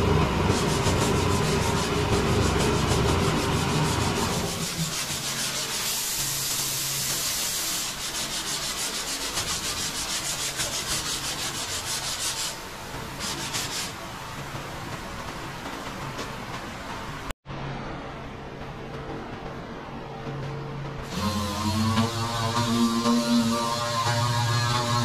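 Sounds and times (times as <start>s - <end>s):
sandpaper rasping by hand: 0.4s - 12.6s, 13.2s - 14.0s.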